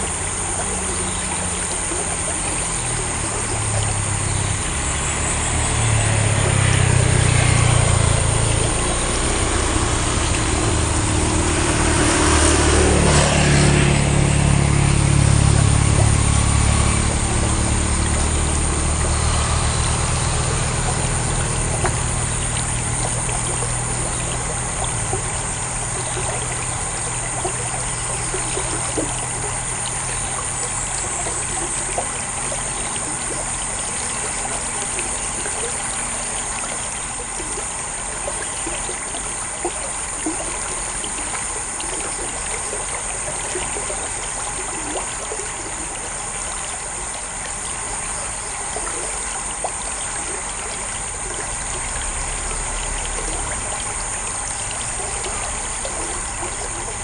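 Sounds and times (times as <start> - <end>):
running water trickling: 0.0 - 57.0.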